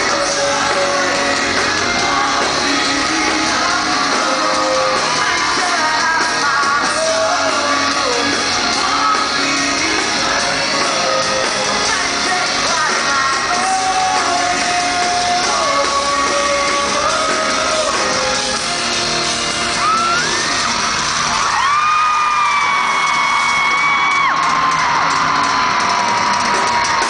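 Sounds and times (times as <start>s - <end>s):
man singing: 0.0s - 18.8s
drums: 0.0s - 27.0s
electric guitar: 0.0s - 27.0s.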